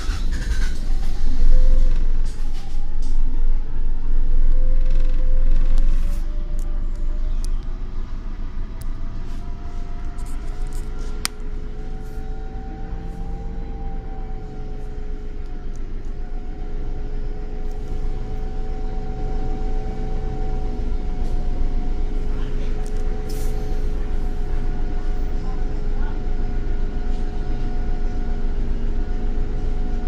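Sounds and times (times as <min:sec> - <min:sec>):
bus engine idling: 0:00.0 - 0:30.0
two-note whine: 0:09.7 - 0:22.0.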